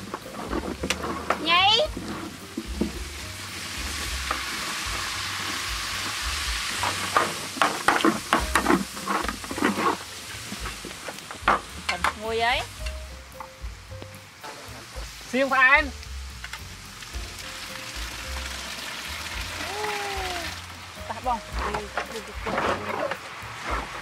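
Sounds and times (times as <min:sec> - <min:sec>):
metal utensils clinking and scraping: 0:00.0 - 0:03.0, 0:03.9 - 0:12.8, 0:21.1 - 0:24.0
liquid sizzling in a pot: 0:00.0 - 0:24.0.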